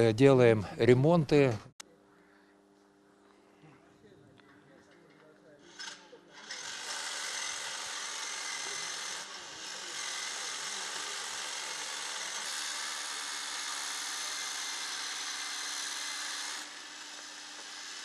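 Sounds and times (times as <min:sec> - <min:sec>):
faint low hum: 0:00.0 - 0:06.4.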